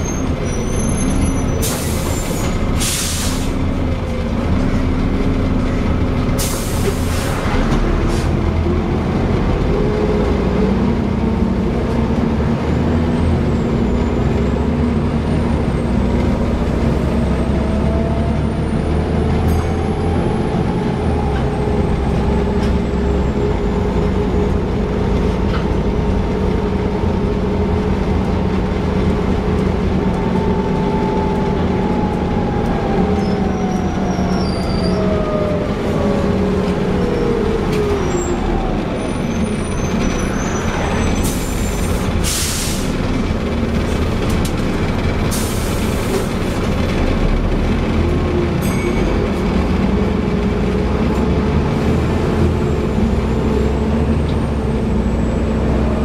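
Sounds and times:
bus engine and road rumble: 0.0s - 56.0s
air hiss burst: 2.8s - 3.6s.

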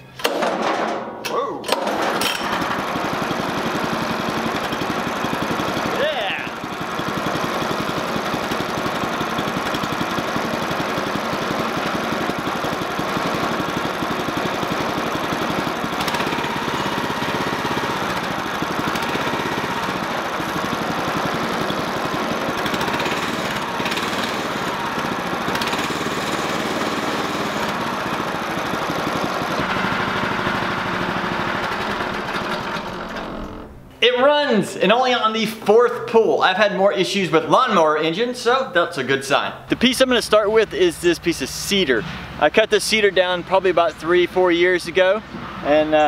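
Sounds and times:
single-cylinder engine running: 1.7s - 33.9s.

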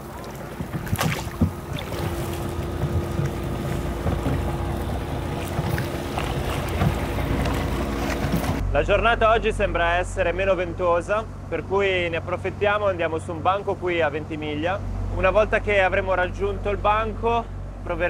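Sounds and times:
oar splashes: 0.0s - 8.6s
rowboat knocks: 0.0s - 8.6s
wind on microphone: 0.0s - 8.8s
water noise: 0.0s - 9.0s
steady hum: 0.0s - 18.0s.

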